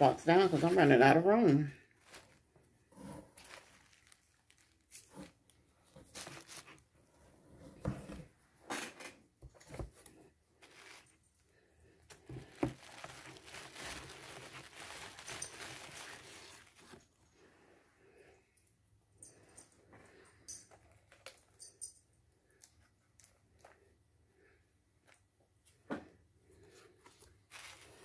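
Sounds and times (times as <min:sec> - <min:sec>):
paper bags rustling: 0:00.0 - 0:06.9, 0:10.6 - 0:11.2, 0:12.1 - 0:17.2, 0:27.1 - 0:28.0
vegetables knocking: 0:12.2 - 0:13.9.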